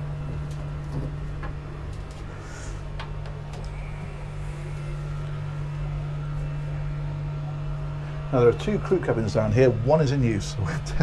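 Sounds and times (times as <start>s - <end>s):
footsteps going down stairs: 0.0s - 2.3s
low mechanical hum of machinery: 0.0s - 11.0s.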